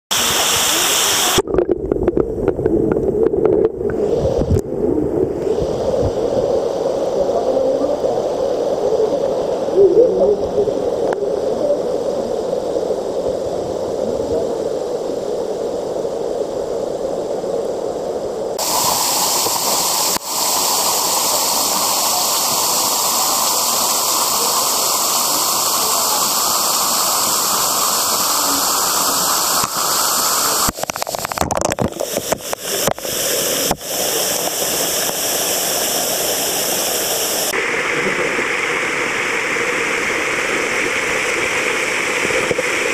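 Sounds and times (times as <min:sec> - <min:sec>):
waterfall splashing onto rocks: 0:00.1 - 0:01.5, 0:18.6 - 0:42.9.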